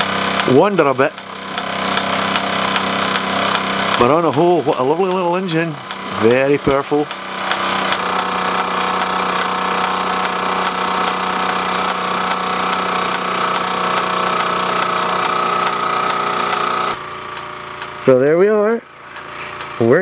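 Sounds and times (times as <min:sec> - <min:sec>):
toy steam engine running: 0:07.9 - 0:20.0.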